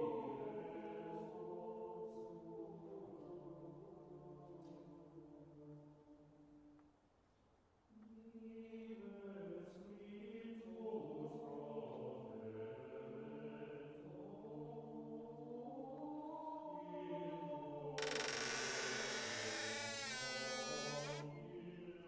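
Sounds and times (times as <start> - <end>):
choral chant: 0.0 - 5.9, 8.3 - 18.1.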